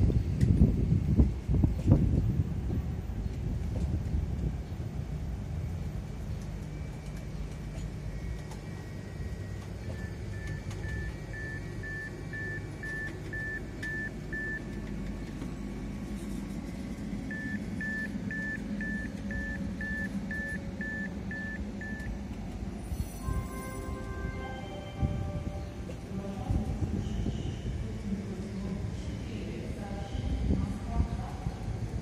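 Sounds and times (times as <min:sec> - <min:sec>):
train coaches rolling past: 0:02.5 - 0:19.8, 0:20.6 - 0:32.0
electronic beeps: 0:09.3 - 0:14.8, 0:17.3 - 0:22.2.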